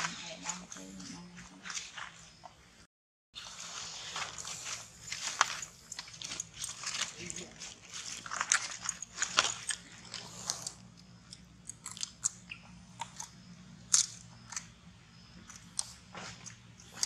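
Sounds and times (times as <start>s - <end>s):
monkey chewing crunchy fruit: 4.2s - 17.0s.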